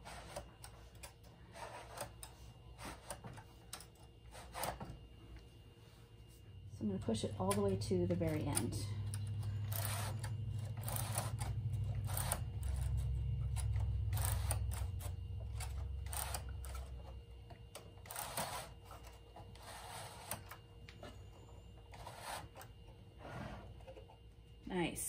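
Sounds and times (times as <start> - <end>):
knitting machine needles clicking: 7.3 - 17.1.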